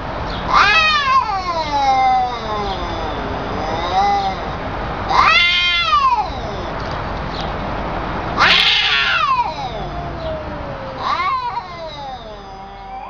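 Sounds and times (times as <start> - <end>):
cat yowling: 0.5 - 6.9, 8.4 - 13.0.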